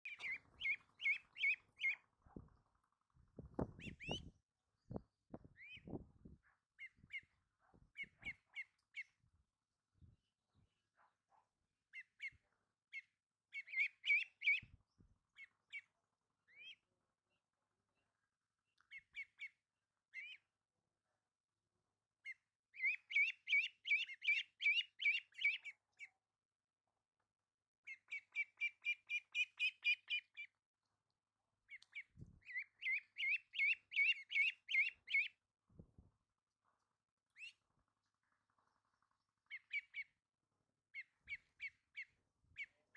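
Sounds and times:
ducklings peeping: 0.1 - 2.8, 3.6 - 4.3, 6.8 - 9.2, 11.9 - 14.7, 15.3 - 16.9, 18.8 - 20.5, 22.2 - 26.1, 27.9 - 30.5, 31.7 - 35.4, 37.3 - 37.6, 38.4 - 40.2, 41.0 - 42.9.

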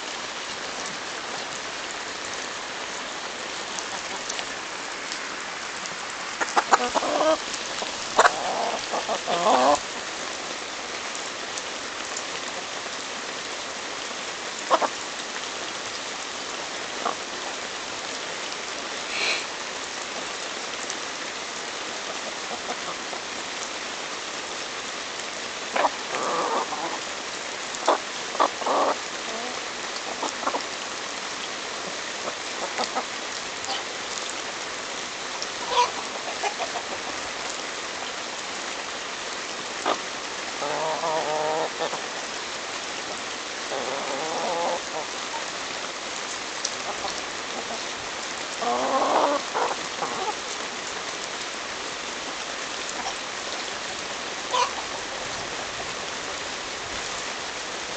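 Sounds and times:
chickens clucking: 6.3 - 9.9, 14.7 - 14.9, 25.7 - 27.0, 27.8 - 30.7, 35.6 - 37.3, 40.6 - 42.0, 43.7 - 45.5, 46.8 - 47.9, 48.6 - 50.4, 54.5 - 55.0
steady hiss: 15.4 - 57.9.

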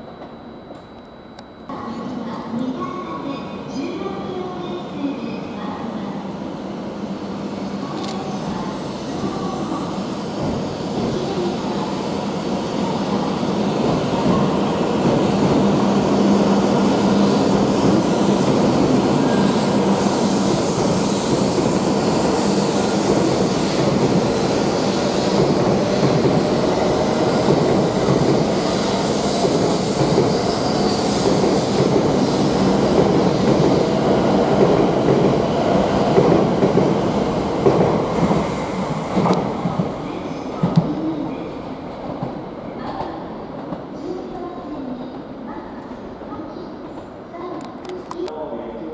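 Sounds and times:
train wheels rushing: 7.8 - 41.0.

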